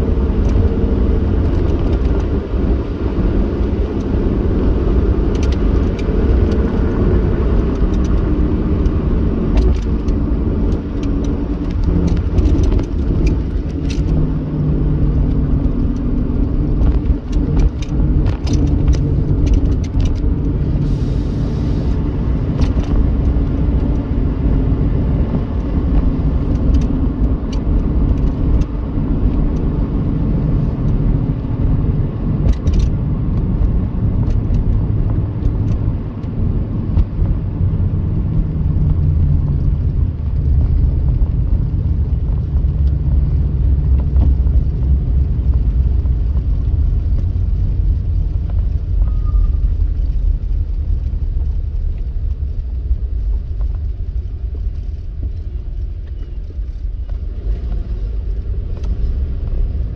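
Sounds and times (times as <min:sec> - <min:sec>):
car tyres and engine rumble: 0:00.0 - 0:59.9.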